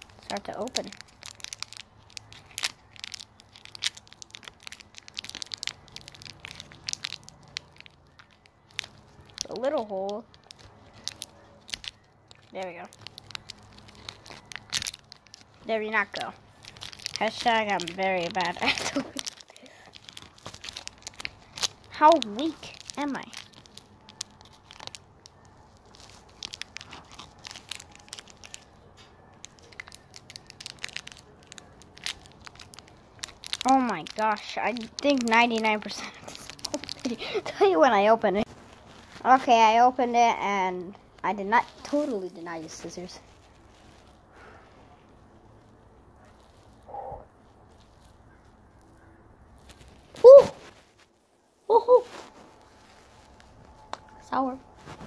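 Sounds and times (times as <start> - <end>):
plastic wrapper crinkling: 0.0 - 44.5, 45.1 - 55.0.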